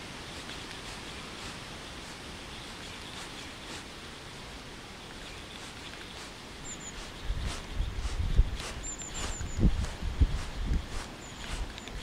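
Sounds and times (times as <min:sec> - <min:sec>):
high bird chirp: 0:05.2 - 0:12.0
wind buffeting microphone: 0:05.6 - 0:12.0
wind rushing: 0:06.6 - 0:12.0.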